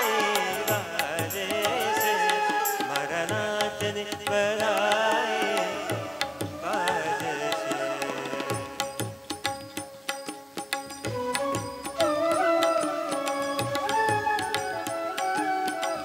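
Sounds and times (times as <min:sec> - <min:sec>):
wordless vocal melody: 0:00.0 - 0:09.2
keyboard: 0:00.0 - 0:16.0
tabla rhythm: 0:00.0 - 0:16.0.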